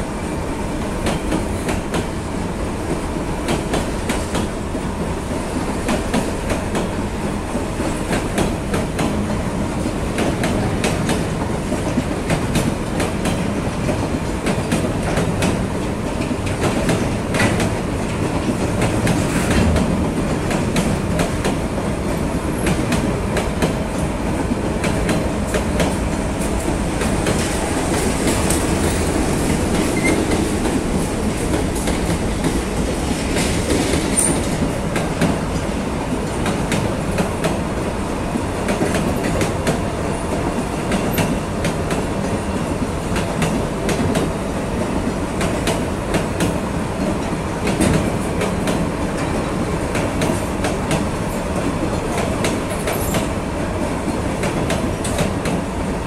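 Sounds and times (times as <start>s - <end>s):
freight train rumbling past: 0.0s - 56.0s
wheels clacking over rail joints: 45.4s - 53.4s.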